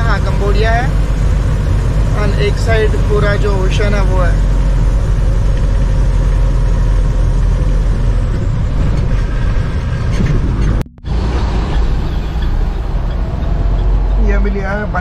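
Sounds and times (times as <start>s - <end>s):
vehicle engine and road noise: 0.0s - 15.0s.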